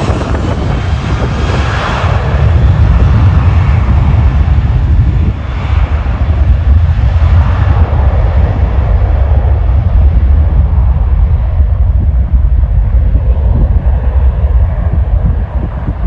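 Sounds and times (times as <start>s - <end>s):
airliner engines rumbling: 0.0s - 16.0s.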